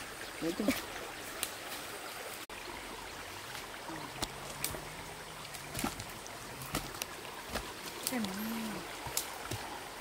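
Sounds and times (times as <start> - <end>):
stream flowing: 0.0 - 10.0
branches snapping: 5.5 - 8.4, 9.0 - 9.7.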